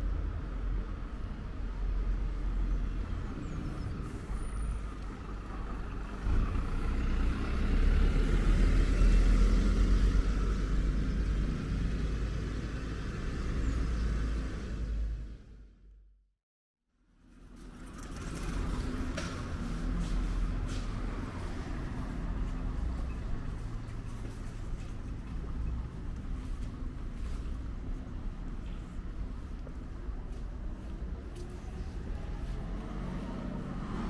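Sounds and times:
truck engine rumbling: 0:00.0 - 0:15.6.

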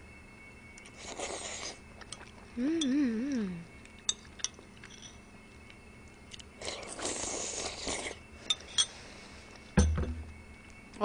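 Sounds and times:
slurping noodle soup: 0:00.8 - 0:01.8, 0:06.6 - 0:08.2
sharp knock with dull thud: 0:09.8 - 0:10.3.

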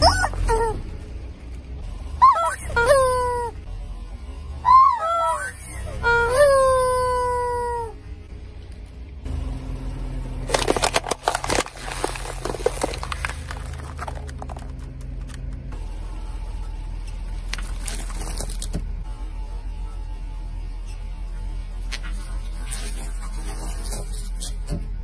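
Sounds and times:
car engine hum: 0:00.0 - 0:25.0
tyre crushing something crunchy: 0:10.5 - 0:15.3.

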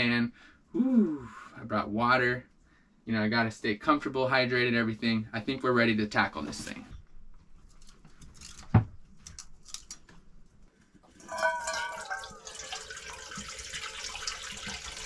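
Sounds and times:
bowl ringing faintly: 0:11.1 - 0:14.4
liquid pouring into metal bowl: 0:11.1 - 0:15.0.

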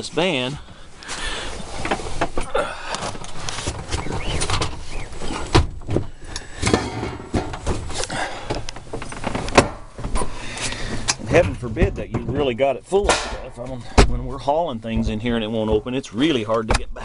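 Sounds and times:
rustling and scraping: 0:00.0 - 0:16.7
knocks of stored tools: 0:05.5 - 0:14.2.

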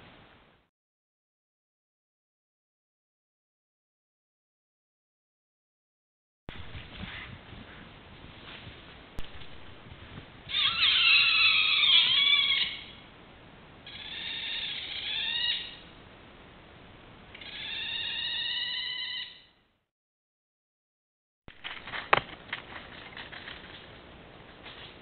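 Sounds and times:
high-pitched wavering animal calls: 0:10.5 - 0:13.0, 0:13.8 - 0:15.9, 0:17.4 - 0:19.6.

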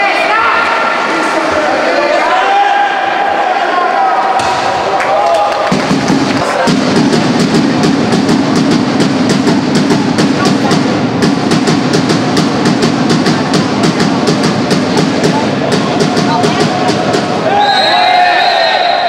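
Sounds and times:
crowd din: 0:00.0 - 0:19.0
drum beating: 0:04.4 - 0:17.9.

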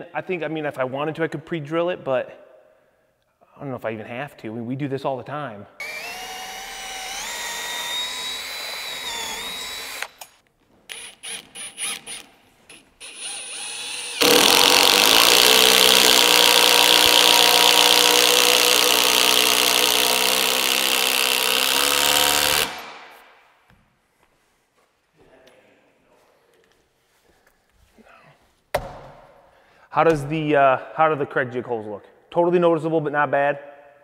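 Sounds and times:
power driver running: 0:05.8 - 0:10.3, 0:13.0 - 0:22.9
cordless drill whining: 0:05.8 - 0:22.9.

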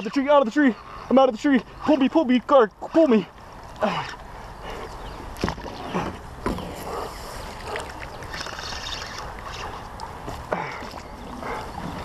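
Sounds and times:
water lapping against kayak hull: 0:03.4 - 0:12.0.

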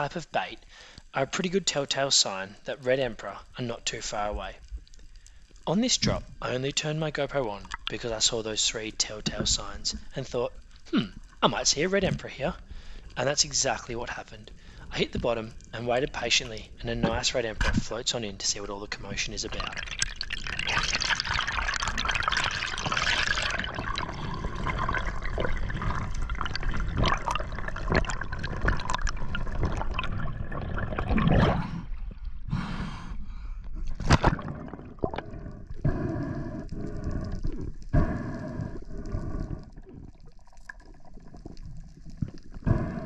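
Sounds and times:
water rushing over camera: 0:14.9 - 0:32.4.

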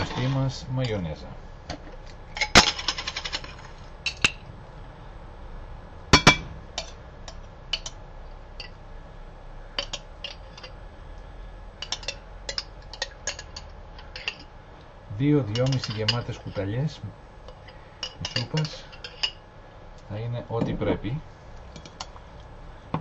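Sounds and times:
spoon clinking on jar and bowl: 0:11.8 - 0:14.5, 0:15.5 - 0:16.6.

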